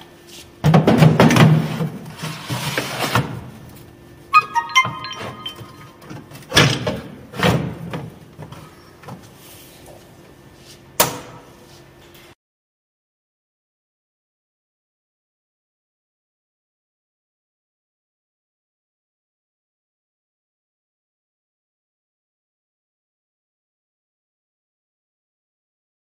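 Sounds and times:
plastic bottles scraping on metal shelves: 1.4s - 3.4s.

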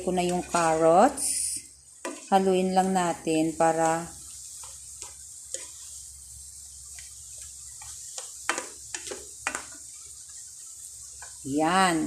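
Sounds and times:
noodles stirred in water: 0.0s - 12.0s
water simmering hiss: 0.0s - 12.0s.

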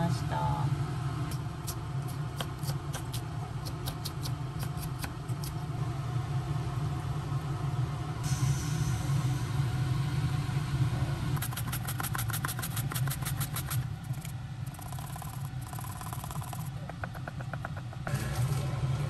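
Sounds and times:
steady low hum: 0.0s - 19.0s
rapid even tapping: 14.8s - 18.1s.

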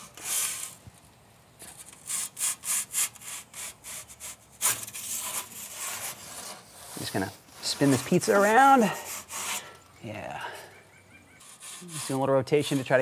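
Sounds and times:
metal pizza peel scraping stone: 1.8s - 9.7s, 11.4s - 13.0s.

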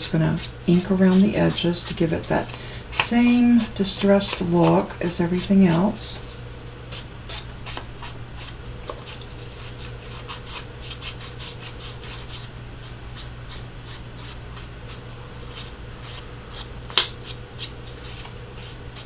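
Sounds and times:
inking tool scraping paper edges: 0.0s - 12.5s.

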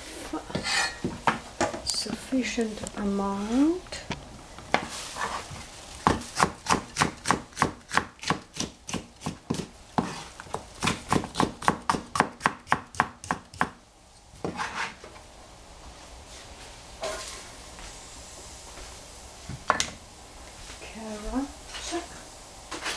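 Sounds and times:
knife chopping on cutting board: 6.1s - 10.2s.

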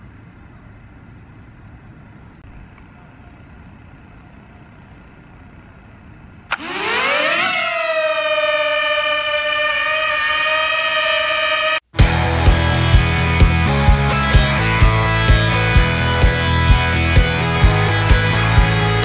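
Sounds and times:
faint outdoor background noise: 0.0s - 6.6s
drone motors buzzing: 6.5s - 19.0s.

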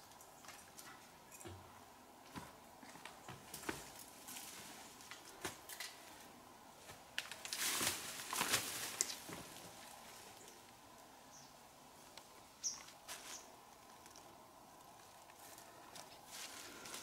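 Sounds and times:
rustling in leafy undergrowth: 3.6s - 11.0s, 12.0s - 17.0s.

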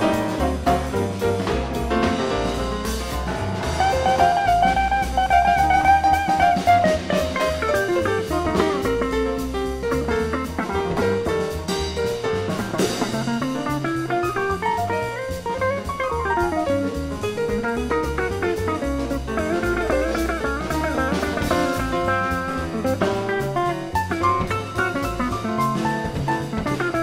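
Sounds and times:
bass line: 0.0s - 27.0s
drum kit with cymbals: 0.0s - 27.0s
electric guitar melody: 3.8s - 11.2s.

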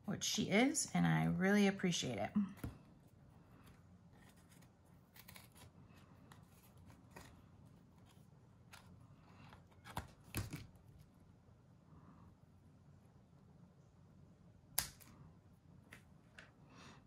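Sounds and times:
scissors snipping paper: 4.2s - 5.7s.

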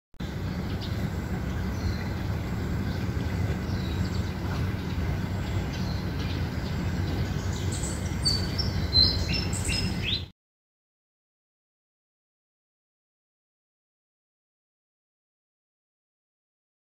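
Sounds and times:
birds chirping: 0.2s - 10.3s
low rumble: 0.2s - 10.3s.

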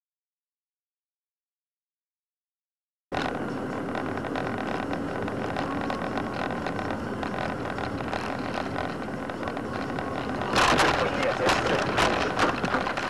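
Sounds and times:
car engine and road noise: 3.1s - 13.0s.

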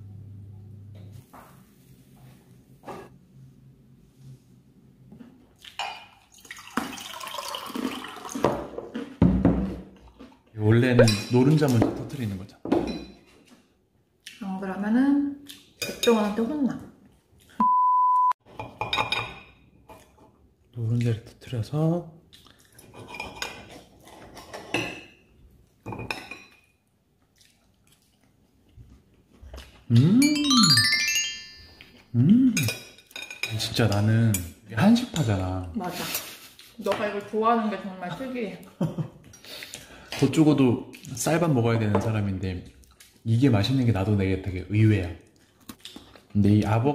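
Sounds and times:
water pouring into a glass: 6.2s - 8.5s
cutlery scraping a ceramic plate: 22.8s - 25.2s.

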